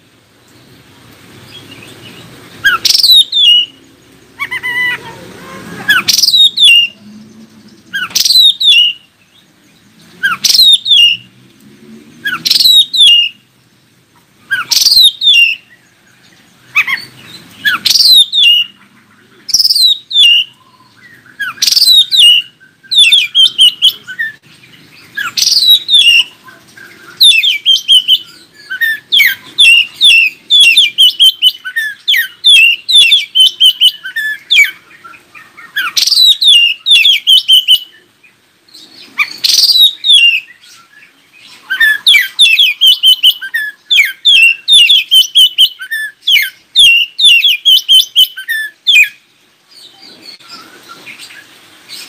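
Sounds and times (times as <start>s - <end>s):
bird singing whistled phrases: 2.6s - 3.8s, 4.4s - 7.0s, 7.9s - 9.1s, 10.2s - 11.3s, 12.2s - 13.4s, 14.5s - 15.7s, 16.8s - 18.8s, 19.5s - 24.4s, 25.1s - 38.1s, 39.2s - 49.2s.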